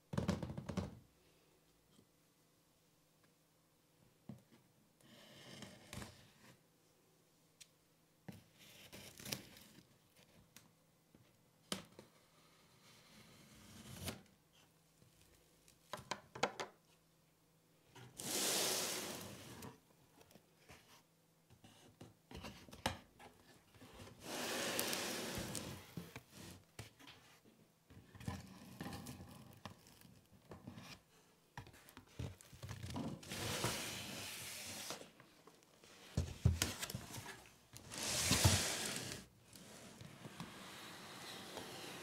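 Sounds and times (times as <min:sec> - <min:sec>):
cardboard scraping against cardboard: 0:24.2 - 0:26.6, 0:36.7 - 0:42.0.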